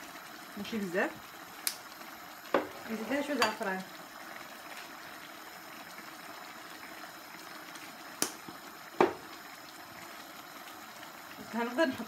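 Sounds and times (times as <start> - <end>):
sauce simmering and bubbling: 0.0 - 12.0
wooden spoon knocking on pan: 2.5 - 2.8, 9.0 - 9.2.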